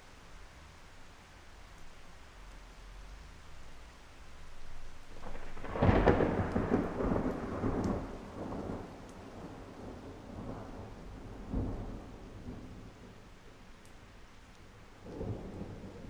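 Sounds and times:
steady rain: 0:00.0 - 0:16.0
thunder crack and rumble: 0:05.1 - 0:13.2, 0:15.0 - 0:16.0.

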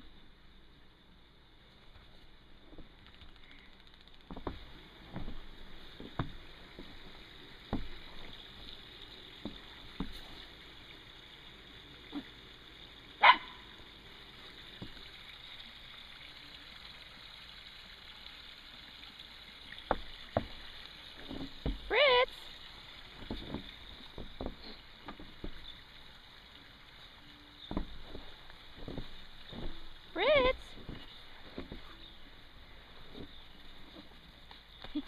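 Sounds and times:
crunches and thumps in snow: 0:04.3 - 0:08.5, 0:19.9 - 0:22.0, 0:23.0 - 0:25.8, 0:27.7 - 0:32.1, 0:32.8 - 0:35.0
dog barking: 0:13.2 - 0:13.6.

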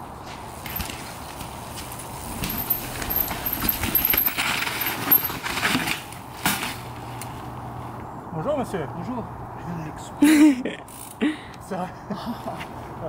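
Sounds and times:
tyres crunching over gravel: 0:00.2 - 0:07.5
bike clattering over rocks: 0:00.3 - 0:06.9.

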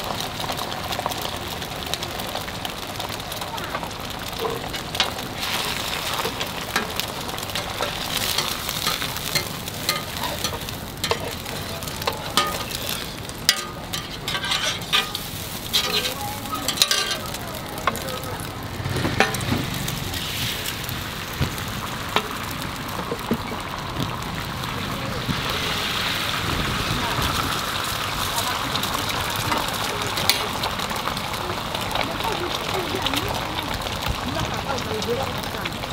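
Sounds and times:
egg sizzling on a griddle: 0:00.0 - 0:35.9
metal spatula scraping a griddle: 0:04.4 - 0:18.1, 0:19.0 - 0:19.5.

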